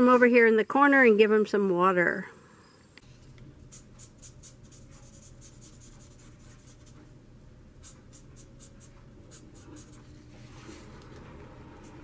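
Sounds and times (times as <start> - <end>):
marker scratching on paper: 3.7 - 7.0, 7.8 - 10.1.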